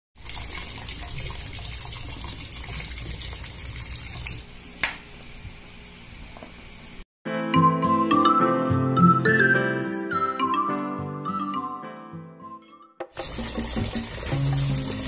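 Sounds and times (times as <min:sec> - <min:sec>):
tap water splashing into bowl: 0:13.0 - 0:15.0.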